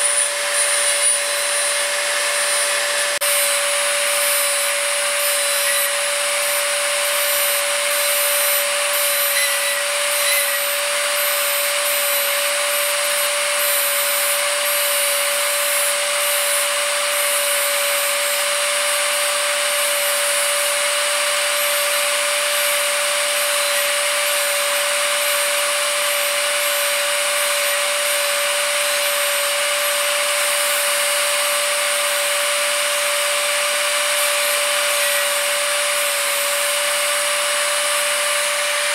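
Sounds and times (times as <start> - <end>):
rotary tool grinding metal: 0.0 - 38.9.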